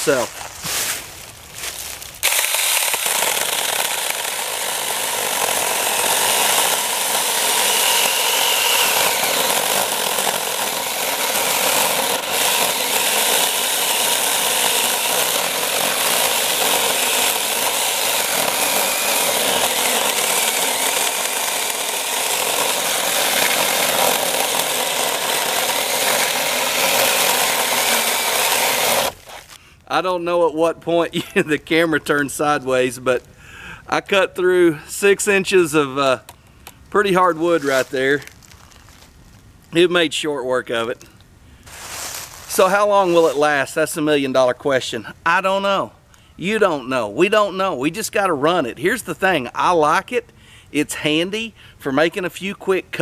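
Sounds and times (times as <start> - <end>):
chainsaw cutting through log: 2.2 - 29.6
electric motor whir: 2.2 - 29.6.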